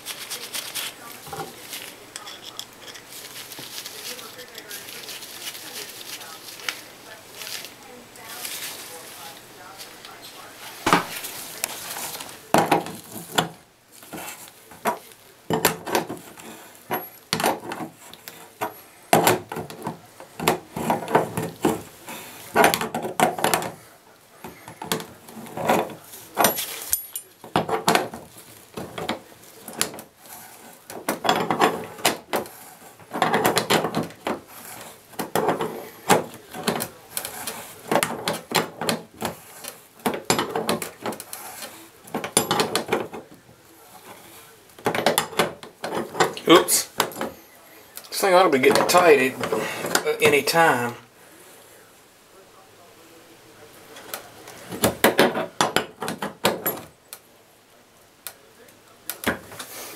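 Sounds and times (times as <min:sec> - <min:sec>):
metal tool clinking on metal: 0:02.1 - 0:03.1, 0:26.4 - 0:27.4.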